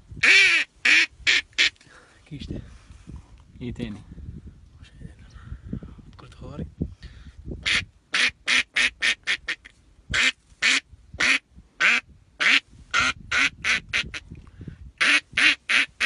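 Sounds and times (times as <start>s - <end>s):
duck call quacking: 0.2s - 1.7s, 7.6s - 14.2s, 15.0s - 16.0s.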